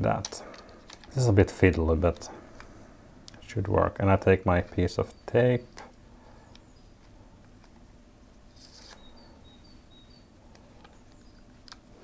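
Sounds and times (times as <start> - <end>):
handling adhesive tape: 8.5 - 9.1
faint high chirps: 8.5 - 11.5
tape crackling pulled free: 8.6 - 9.0.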